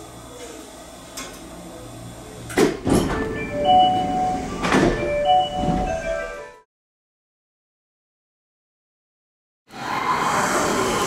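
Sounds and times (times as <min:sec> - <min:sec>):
train doors clunking: 0:02.5 - 0:06.6.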